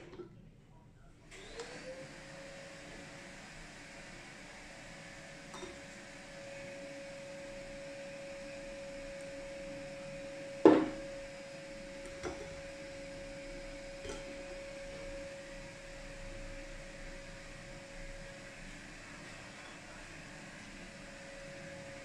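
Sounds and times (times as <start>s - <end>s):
steady hum: 5.5s - 22.0s
container knocking on wooden table: 10.6s - 11.1s.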